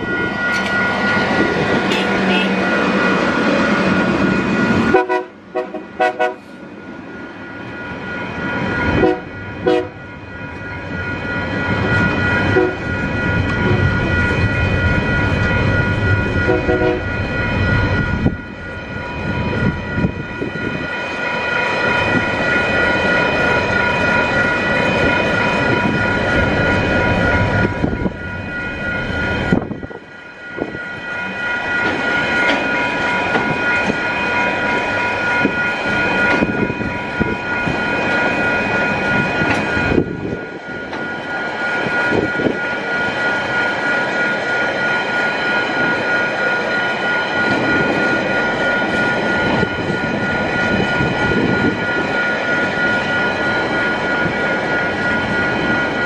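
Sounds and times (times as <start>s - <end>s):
diesel locomotives running: 0.0s - 56.0s
train horn toots: 1.9s - 2.6s, 4.9s - 6.5s, 9.0s - 10.0s, 12.5s - 12.8s, 16.4s - 17.1s.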